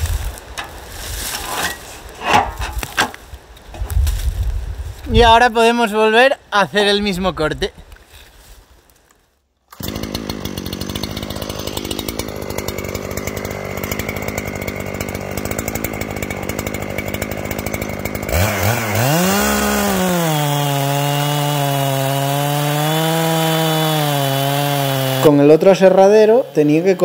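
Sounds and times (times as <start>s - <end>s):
chainsaw cutting log: 0.0s - 3.2s, 9.7s - 27.0s.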